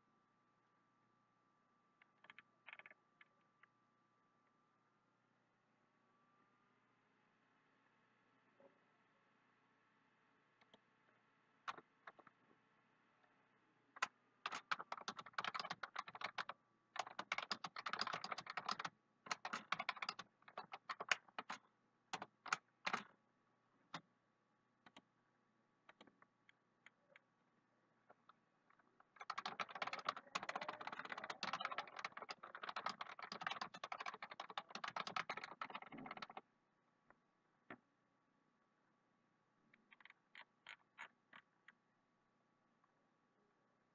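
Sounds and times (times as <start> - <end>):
computer keyboard typing: 14.0 - 23.1, 29.0 - 36.4.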